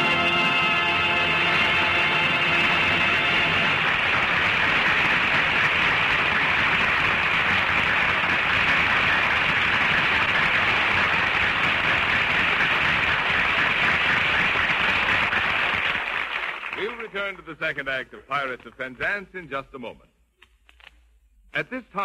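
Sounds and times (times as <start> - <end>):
studio audience applauding: 0.0 - 17.5.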